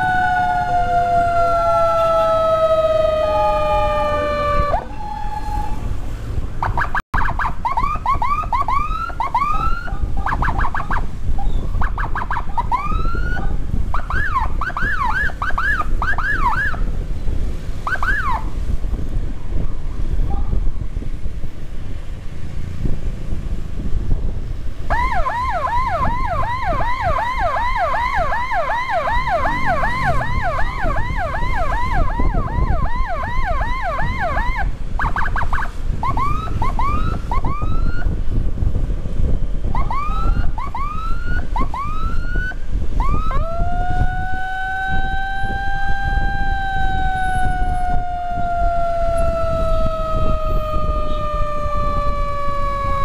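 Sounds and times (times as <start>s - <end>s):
motorcycle engine rumble: 0.0s - 53.0s
wind: 0.0s - 53.0s
electronic siren chirps and yelp: 6.6s - 16.8s, 17.8s - 18.5s, 24.9s - 38.1s, 39.7s - 53.0s.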